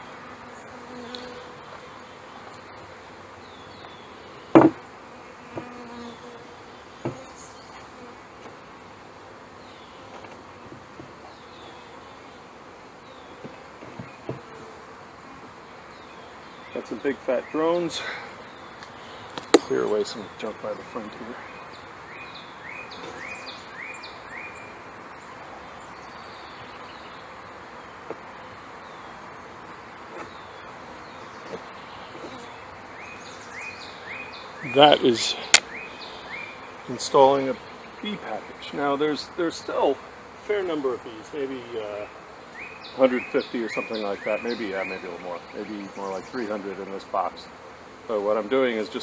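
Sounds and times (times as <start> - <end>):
bees buzzing: 0.0 - 49.0
hive lid knocking: 4.5 - 4.9, 5.5 - 5.9, 7.0 - 7.3, 13.4 - 14.6, 19.3 - 19.7.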